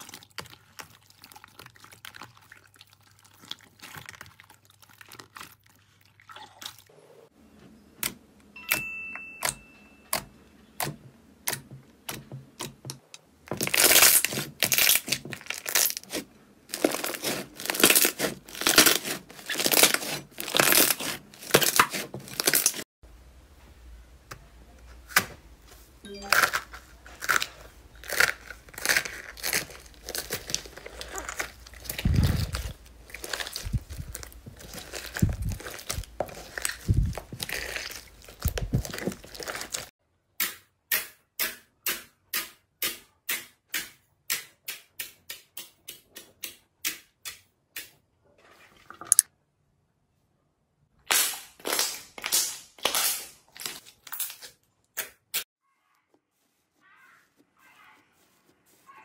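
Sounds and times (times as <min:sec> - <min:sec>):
slime crackling and popping: 0:13.5 - 0:22.8, 0:27.2 - 0:39.9, 0:51.1 - 0:54.4.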